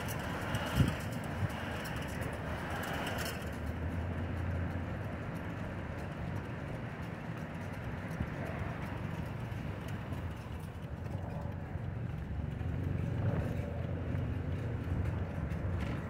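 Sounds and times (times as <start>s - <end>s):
distant traffic: 0.0s - 16.0s
low engine hum: 0.0s - 16.0s.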